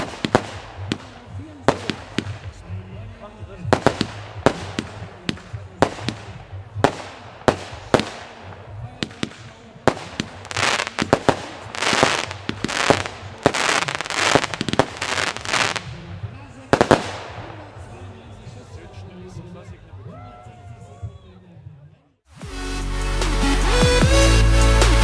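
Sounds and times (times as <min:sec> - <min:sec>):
firework bangs: 0:00.0 - 0:02.8, 0:03.5 - 0:18.2
hissing crackle: 0:03.7 - 0:16.0.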